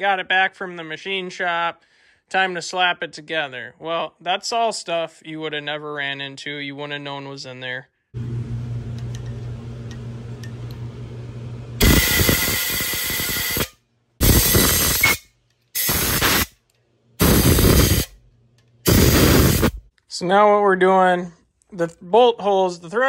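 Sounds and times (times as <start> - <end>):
compressed air blasts: 11.8 - 16.6, 17.2 - 18.2, 18.8 - 19.9.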